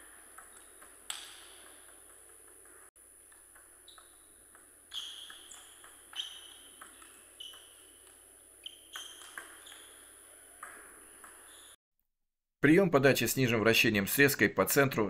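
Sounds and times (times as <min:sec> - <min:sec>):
table tennis ball hits: 0:00.0 - 0:11.5.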